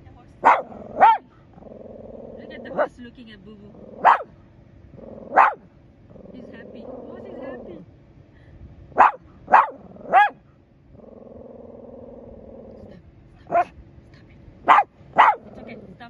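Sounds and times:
dog barking: 0.4 - 1.3, 2.7 - 3.0, 4.0 - 4.4, 5.3 - 5.7, 9.0 - 10.4, 13.5 - 13.7, 14.6 - 15.6.

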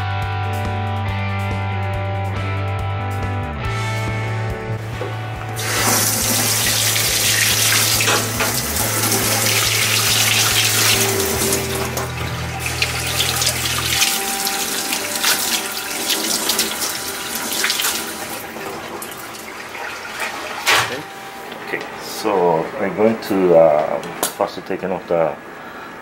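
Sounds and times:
tap water splashing into sink: 5.7 - 20.9.

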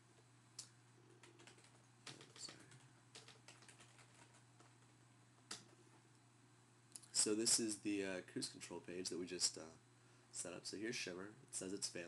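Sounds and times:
computer keyboard typing: 1.1 - 4.9.

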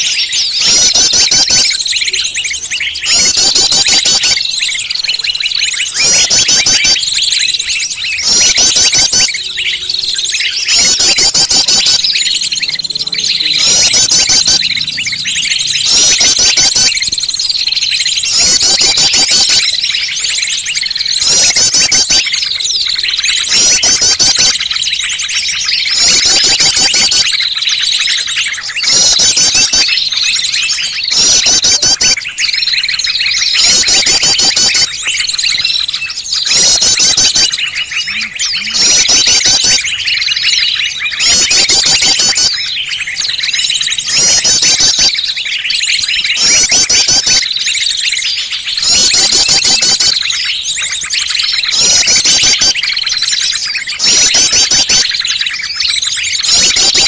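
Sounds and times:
songbird calls and chirps: 0.0 - 57.0
steady high tone: 8.1 - 19.3, 36.4 - 40.0.

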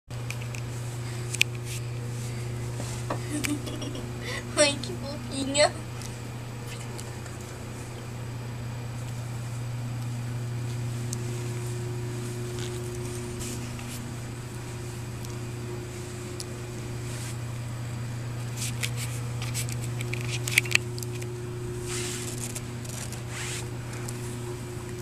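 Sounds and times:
steady low hum: 0.1 - 25.0
fabric rustling: 21.8 - 23.7.

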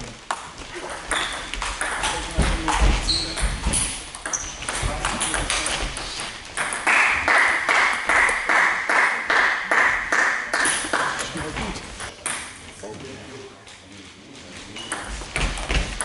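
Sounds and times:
table tennis balls clicking: 0.2 - 9.4
ball bouncing rhythmically: 0.2 - 12.5, 14.9 - 16.0.

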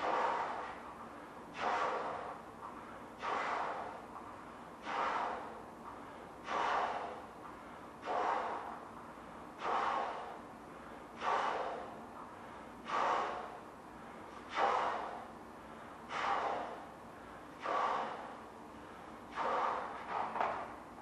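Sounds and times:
breath inflating a balloon: 1.6 - 2.3, 4.8 - 5.6, 6.4 - 7.2, 8.0 - 8.7, 9.6 - 10.4, 11.2 - 11.9, 12.8 - 13.6, 14.5 - 15.2, 16.1 - 16.8, 17.6 - 18.3, 19.3 - 20.3.

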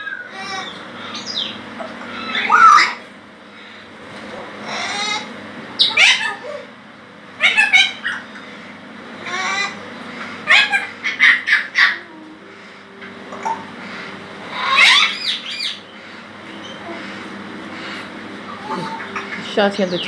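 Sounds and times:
macaw screeching: 0.0 - 3.1, 4.6 - 6.7, 7.4 - 8.4, 9.2 - 9.8, 10.4 - 12.1, 13.4 - 20.0.

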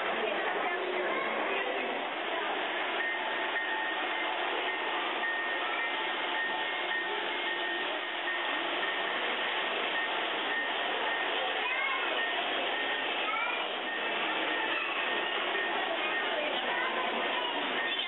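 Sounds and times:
crowd din in indoor hall: 0.0 - 18.0
faint short high tones: 10.0 - 18.0.

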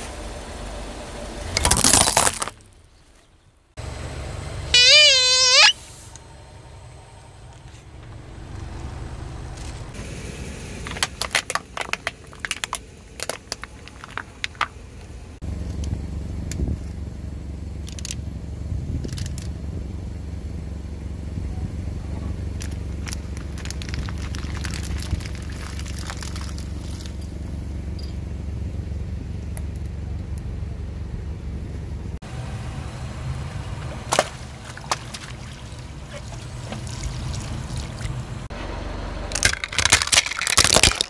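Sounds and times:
plastic cracking and snapping: 1.6 - 2.6, 22.6 - 26.8, 39.3 - 41.0
water beads squishing: 1.6 - 2.7, 22.6 - 27.2, 39.3 - 41.0
tyre squeal: 4.7 - 6.0
steady low rumble: 5.8 - 41.0.

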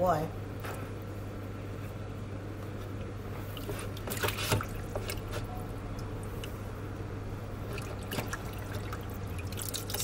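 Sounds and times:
water sloshing and dripping: 2.8 - 6.7, 7.5 - 10.0
small water splashes: 3.5 - 5.3, 7.6 - 10.0.

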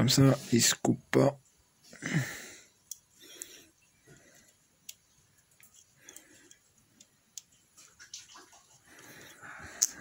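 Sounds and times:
faint clicks of small parts: 2.7 - 10.0.

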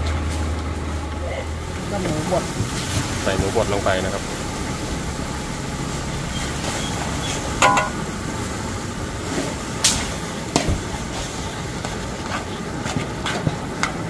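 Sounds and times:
low rumble: 0.0 - 12.3
utensil clinking against pot: 7.6 - 8.0.

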